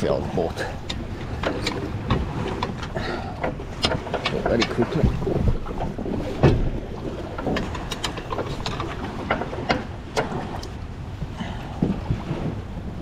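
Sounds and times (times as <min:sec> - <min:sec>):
hand winch clicking and clunking: 0:00.8 - 0:10.7.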